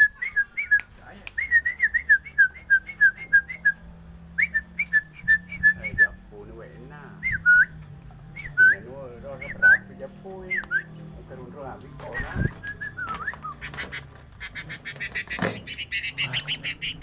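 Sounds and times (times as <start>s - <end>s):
hooked whistles: 0.0s - 3.8s, 4.4s - 6.2s, 7.2s - 7.8s, 8.4s - 10.9s, 12.0s - 13.9s.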